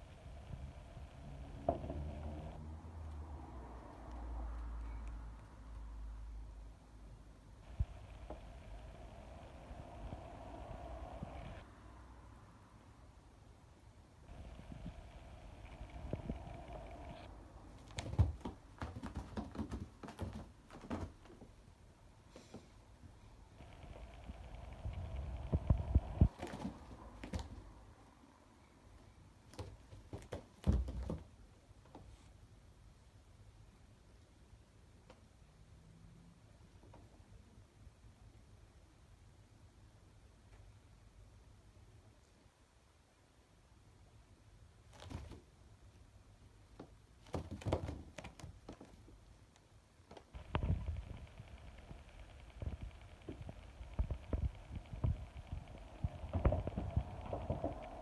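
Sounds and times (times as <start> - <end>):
cat paws thumping on carpet: 17.8 - 21.4.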